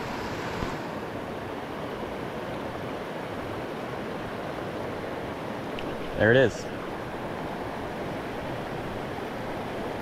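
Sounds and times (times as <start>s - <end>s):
stream running over stones: 0.0s - 10.0s.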